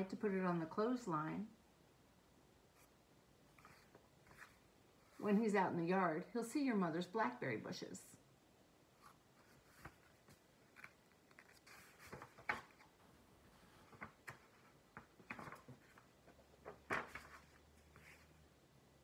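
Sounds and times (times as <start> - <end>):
book pages rustling: 2.7 - 5.3, 9.0 - 18.4.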